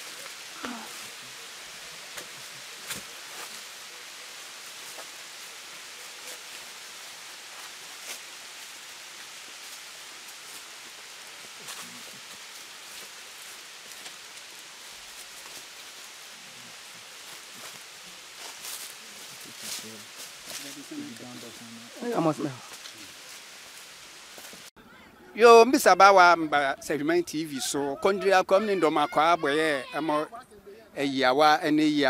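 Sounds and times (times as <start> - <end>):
waterfall rushing: 0.0 - 24.7.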